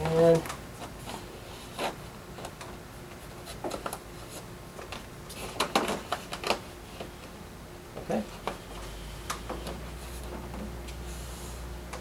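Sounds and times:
plastic sheet rustling and clicking: 3.4s - 7.1s.

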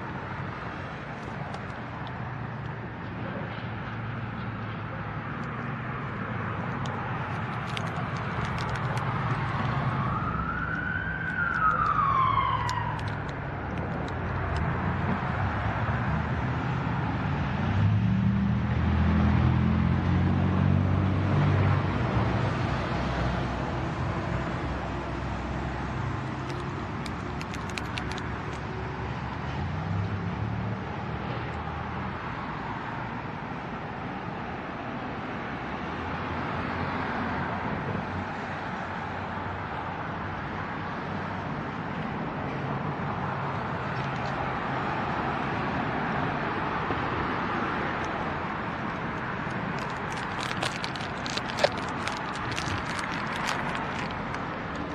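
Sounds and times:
engine rumble: 0.0s - 30.6s, 43.6s - 54.9s
traffic rumble: 0.0s - 54.9s
emergency siren wailing: 9.5s - 13.7s.

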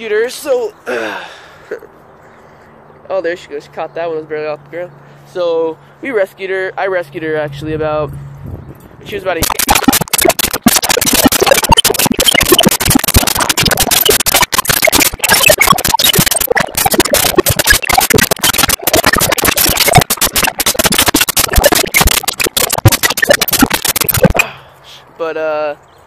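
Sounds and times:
loud harsh crackling noise: 9.4s - 24.4s.

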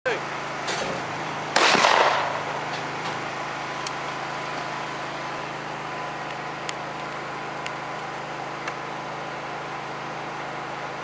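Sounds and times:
steady low hum: 0.1s - 11.0s
shotgun shot: 1.6s - 2.5s.

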